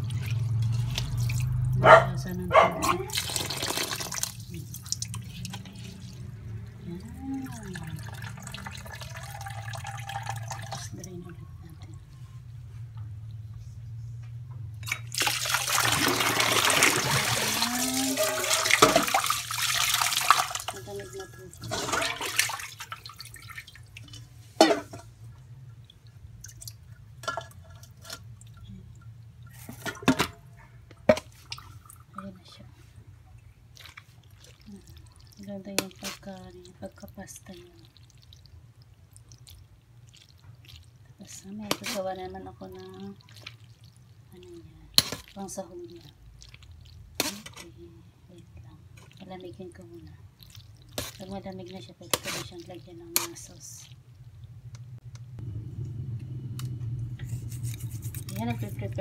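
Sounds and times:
tap water running: 0.0 - 1.9, 3.0 - 11.2, 14.8 - 30.3
water dripping and trickling: 0.0 - 12.2, 14.8 - 30.2, 30.9 - 55.4
steady low hum: 52.6 - 59.0.

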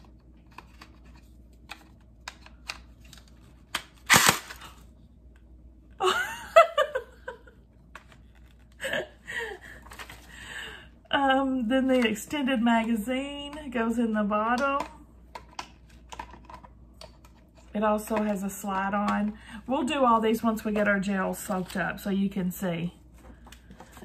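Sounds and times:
toy blaster firing burst: 4.1 - 4.6
woman laughing: 6.0 - 7.6, 8.8 - 9.9.

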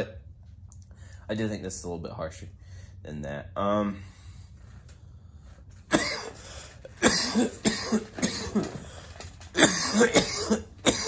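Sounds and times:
man coughing: 5.9 - 6.4, 7.0 - 8.9, 9.6 - 11.0.

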